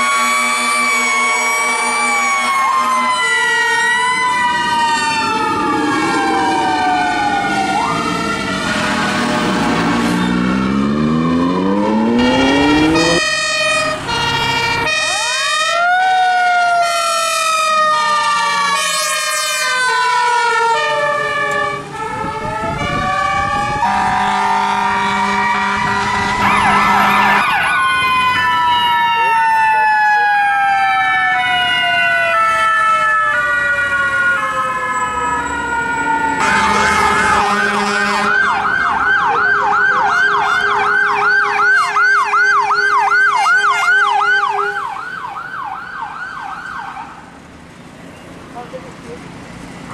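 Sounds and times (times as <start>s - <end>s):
two-tone air horns: 12.1s - 15.2s, 21.5s - 27.5s, 36.4s - 38.6s.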